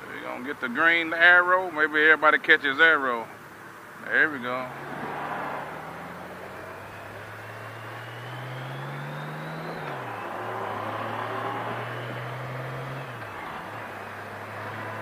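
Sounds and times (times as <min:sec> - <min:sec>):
motorcycle engine accelerating: 0:04.6 - 0:15.0.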